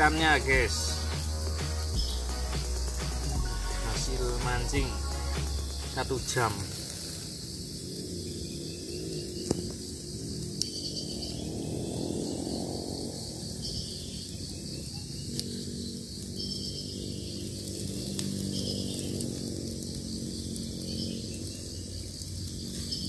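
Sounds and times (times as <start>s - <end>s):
low droning hum: 0.0s - 7.0s
insects chirping: 0.0s - 23.0s
wood fire crackling: 0.0s - 23.0s.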